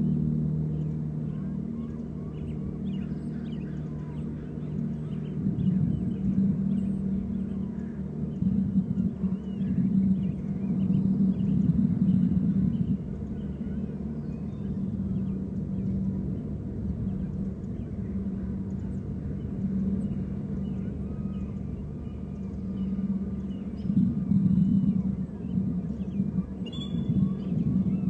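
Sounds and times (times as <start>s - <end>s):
steady low drone: 0.0s - 28.0s.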